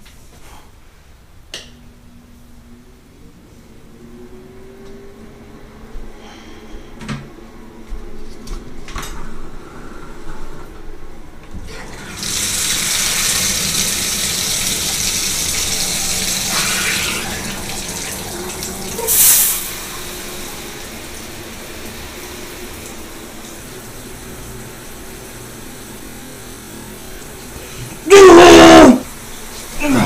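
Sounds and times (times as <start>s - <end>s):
faucet water running into tub: 11.7s - 30.0s.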